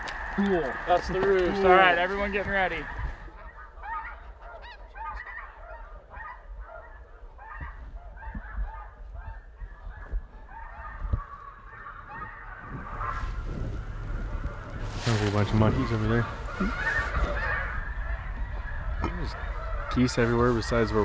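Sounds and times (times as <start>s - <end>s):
flock of geese honking: 0.0s - 21.0s
low rumble: 8.9s - 20.6s.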